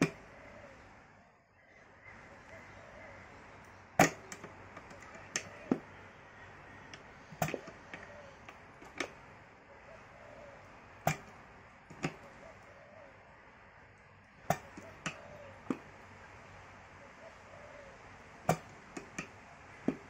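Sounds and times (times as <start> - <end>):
gear lever metallic clicks: 3.6 - 5.9, 6.9 - 9.2.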